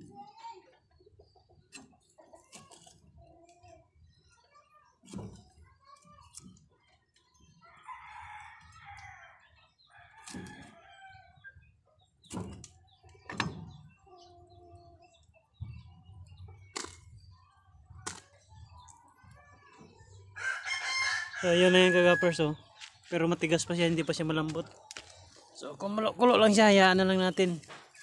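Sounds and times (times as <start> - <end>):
chickens clucking: 0.0 - 4.6, 9.6 - 28.0
rooster crowing: 20.4 - 22.6.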